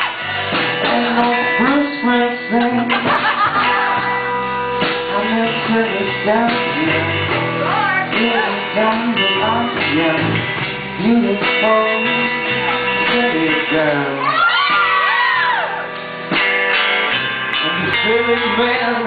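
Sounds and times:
live rock band playing: 0.0s - 19.0s
man singing into microphone: 0.5s - 3.4s, 5.0s - 14.9s, 17.5s - 19.0s.

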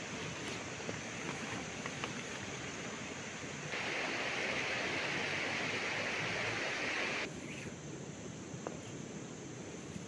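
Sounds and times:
river water rushing: 0.0s - 7.3s.

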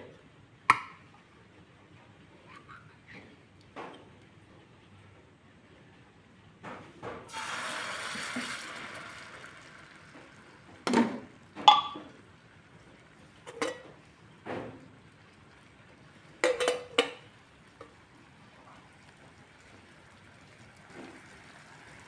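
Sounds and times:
tin can and cookware clinking: 10.8s - 12.2s, 13.4s - 14.0s, 16.4s - 17.3s.

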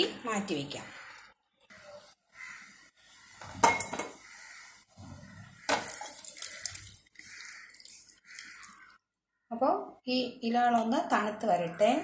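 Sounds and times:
kitchenware clinking: 3.4s - 4.2s
pot clattering against colander: 3.5s - 4.2s
water splashing through colander: 5.7s - 9.0s.

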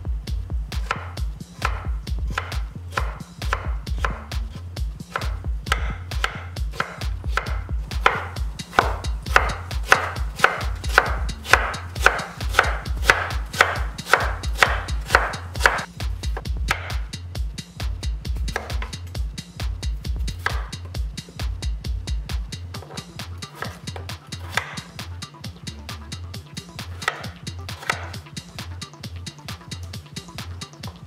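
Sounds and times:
knife chopping on wooden board: 0.8s - 4.2s, 5.1s - 17.0s, 18.5s - 19.0s, 20.4s - 20.7s, 22.8s - 24.9s, 27.0s - 28.2s.

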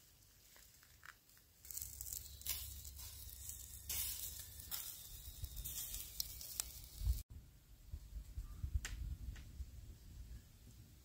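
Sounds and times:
meat sizzling with pops: 0.0s - 7.2s.

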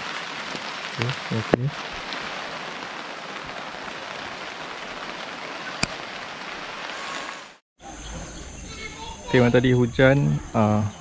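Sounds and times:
rain falling on a tent: 0.0s - 7.6s.

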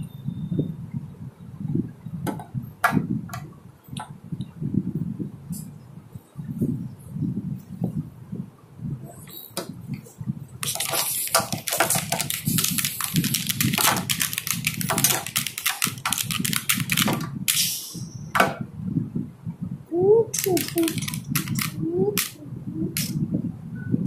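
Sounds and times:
plastic figures knocking and scuffing: 10.6s - 17.4s.

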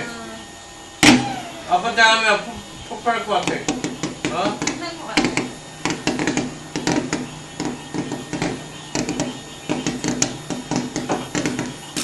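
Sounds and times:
fireworks bangs and pops: 3.4s - 12.0s.

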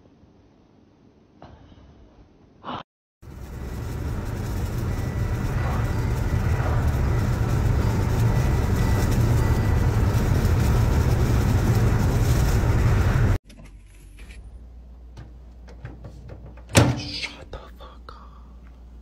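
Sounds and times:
car road and wind noise: 3.3s - 13.4s.

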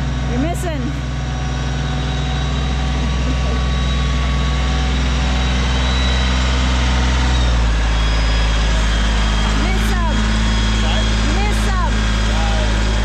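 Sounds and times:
diesel tractor engine running: 0.0s - 13.0s.

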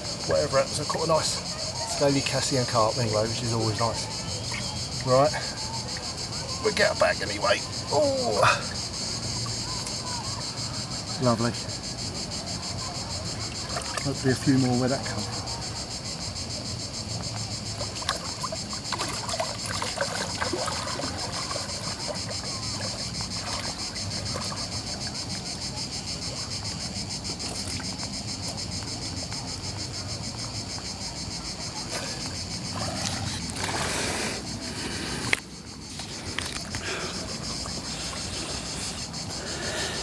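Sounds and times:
cicadas buzzing: 0.0s - 40.0s
water sloshing and splashing: 13.3s - 14.4s, 17.6s - 28.1s, 31.6s - 40.0s.

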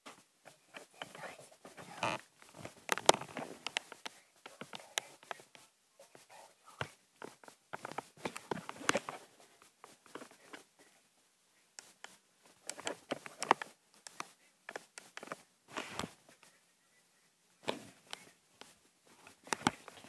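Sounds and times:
device handling clicks and rustles: 2.0s - 5.5s, 7.2s - 9.2s, 9.8s - 10.6s, 11.8s - 16.2s.

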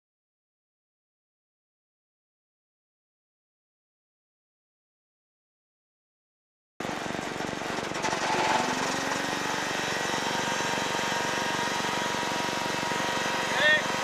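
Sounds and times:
propeller aircraft engine: 6.8s - 14.0s.

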